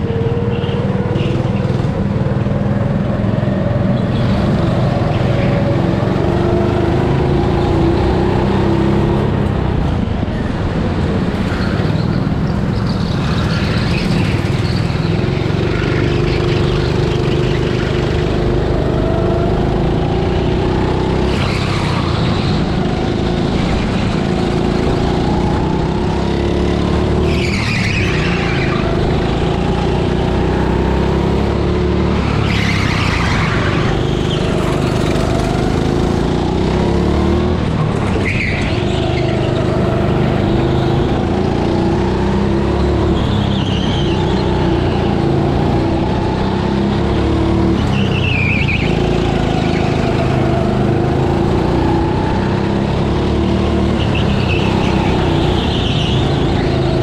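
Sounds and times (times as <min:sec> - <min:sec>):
go-kart engine running: 0:00.0 - 0:57.0
tyres squealing: 0:21.0 - 0:29.7, 0:37.7 - 0:41.0, 0:53.6 - 0:57.0.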